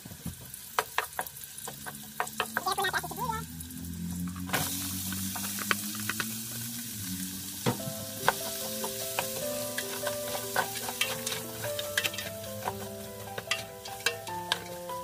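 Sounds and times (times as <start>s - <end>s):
onions sizzling in hot oil: 0.0s - 15.0s
spatula scraping a pot: 8.3s - 15.0s.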